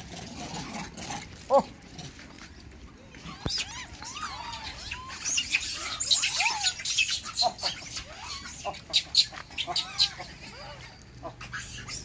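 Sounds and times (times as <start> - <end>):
high squeaky animal calls: 3.2 - 12.0.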